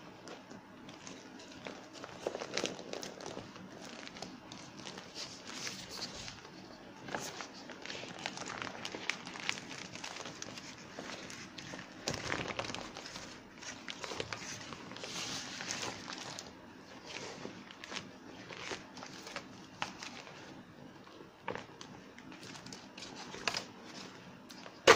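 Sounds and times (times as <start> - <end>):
vinyl crinkling and rustling: 0.0 - 24.9
small crackles: 0.2 - 20.5.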